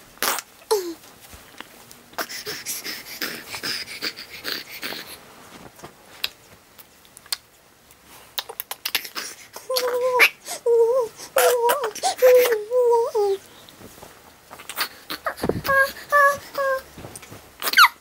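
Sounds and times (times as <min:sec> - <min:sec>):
clothes and bedding rustling: 0:00.7 - 0:03.9, 0:04.7 - 0:06.8, 0:09.6 - 0:18.0
soft breathy sounds: 0:02.2 - 0:05.3, 0:08.0 - 0:13.8, 0:14.6 - 0:17.2
infant crying: 0:09.1 - 0:13.4, 0:14.7 - 0:16.9.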